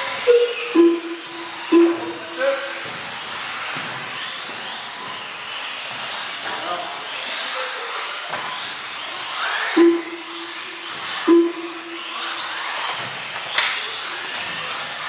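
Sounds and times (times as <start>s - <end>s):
rc car electric motors whining: 0.0s - 15.0s
short loud beeps: 0.3s - 2.5s, 9.8s - 12.4s.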